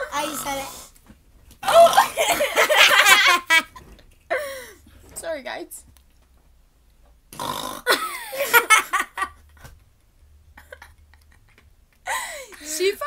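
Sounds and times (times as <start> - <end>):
girls laughing loudly: 1.6 - 4.5, 7.9 - 9.6.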